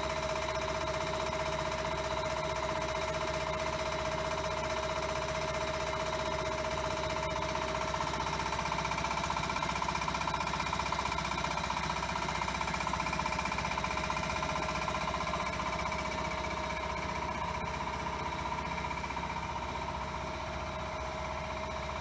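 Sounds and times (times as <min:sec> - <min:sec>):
piston air compressor running: 0:00.0 - 0:22.0.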